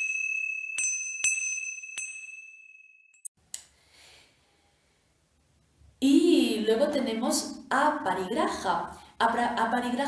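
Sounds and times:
high-pitched chimes ringing: 0:00.0 - 0:03.3.

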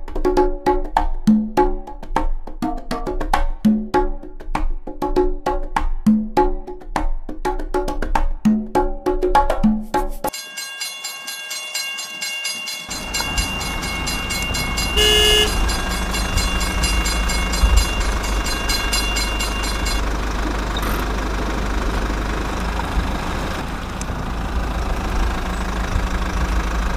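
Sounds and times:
toy train horn toot: 0:12.9 - 0:20.0
fast even ticking: 0:12.9 - 0:20.1
toy train motor rumble: 0:12.9 - 0:26.9.

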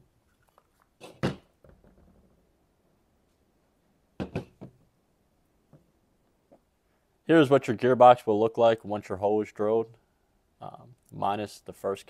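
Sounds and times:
plastic parts knocking on table: 0:04.2 - 0:04.8.

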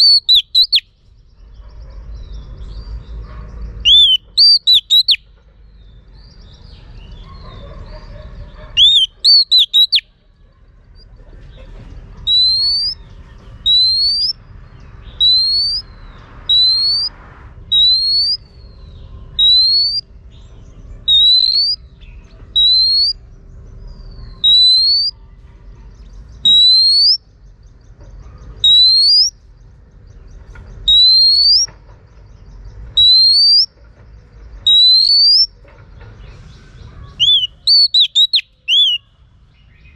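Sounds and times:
bird rising whistled calls: 0:00.0 - 0:00.9, 0:03.9 - 0:05.2, 0:08.8 - 0:10.0, 0:12.3 - 0:13.0, 0:13.7 - 0:14.4, 0:15.2 - 0:15.8, 0:19.4 - 0:20.0, 0:21.1 - 0:21.8, 0:24.4 - 0:25.2, 0:28.6 - 0:29.3, 0:30.9 - 0:31.7, 0:33.0 - 0:33.7, 0:34.7 - 0:35.5, 0:37.2 - 0:39.0
bird sharp notes: 0:00.0 - 0:00.9, 0:03.9 - 0:05.2, 0:08.8 - 0:10.0, 0:37.2 - 0:39.1.

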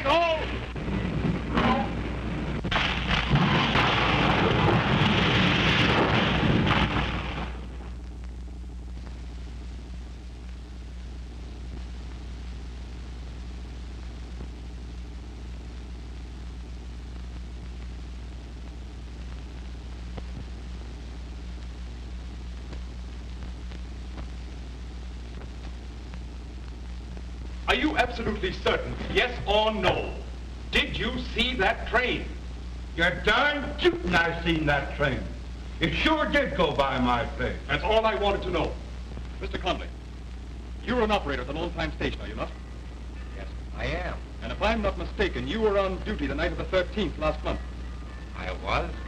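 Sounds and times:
old film soundtrack hum and hiss: 0:00.0 - 0:49.0
loud crash with clattering impacts: 0:02.7 - 0:07.7.

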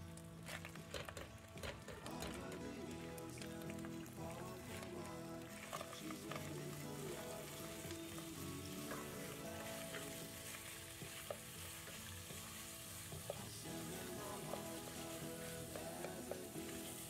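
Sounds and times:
background music: 0:00.0 - 0:17.0
wooden spatula stirring: 0:00.5 - 0:17.0
meat sizzling in hot oil: 0:02.2 - 0:17.0.

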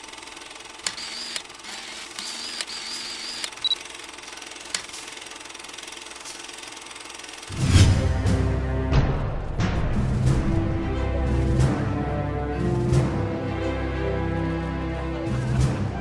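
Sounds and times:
mechanical rattle: 0:00.0 - 0:07.5
sharp clicks: 0:00.8 - 0:03.8, 0:04.6 - 0:05.1
music with deep boom: 0:07.5 - 0:12.1.

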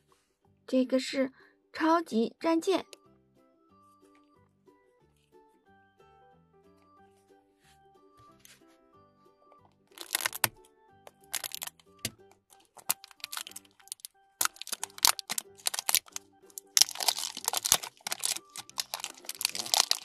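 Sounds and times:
soft background music: 0:00.0 - 0:20.0
plastic wrap crinkling: 0:09.9 - 0:10.5, 0:11.1 - 0:20.0.

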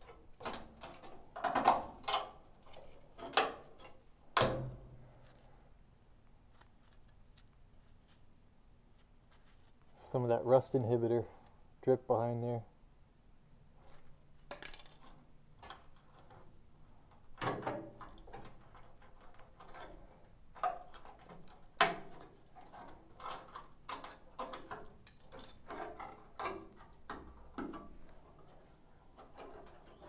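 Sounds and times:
rusted metal cracking and scraping: 0:00.0 - 0:04.8, 0:14.5 - 0:30.0.

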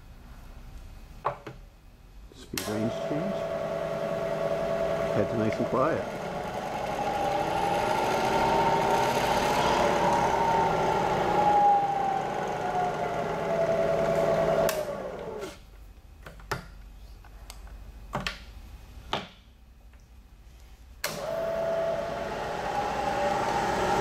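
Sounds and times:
milling machine running: 0:02.8 - 0:15.4, 0:21.2 - 0:24.0.

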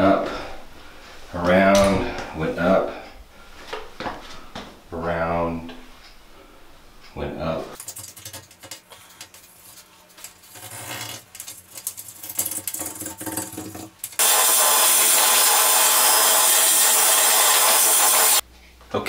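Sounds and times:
tool scraping grout: 0:07.8 - 0:18.4.

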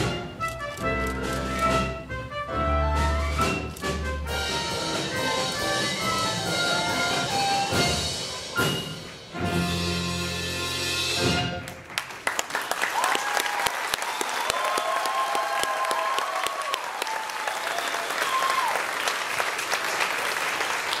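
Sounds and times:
audience applauding: 0:11.6 - 0:21.0
voices whooping and cheering: 0:13.0 - 0:18.9.

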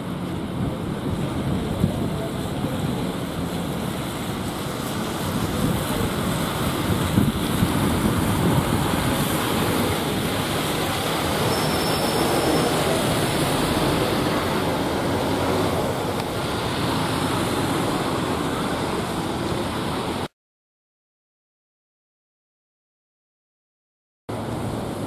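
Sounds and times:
buses moving past: 0:00.0 - 0:20.3, 0:24.3 - 0:25.0
wind on microphone: 0:00.0 - 0:20.3.

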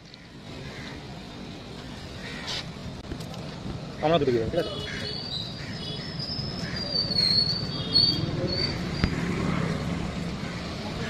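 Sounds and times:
street traffic rumble: 0:00.0 - 0:11.0
high wavering squeal: 0:06.1 - 0:09.2.

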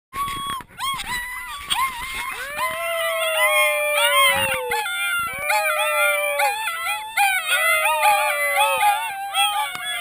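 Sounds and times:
high wavering puppy cries: 0:00.2 - 0:10.0
puppies howling: 0:00.2 - 0:10.0.

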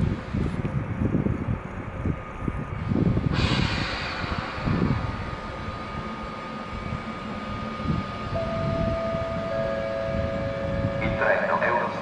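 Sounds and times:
electric locomotive rumble: 0:00.0 - 0:12.0
high whine: 0:00.0 - 0:12.0
low steady tones: 0:00.0 - 0:12.0.

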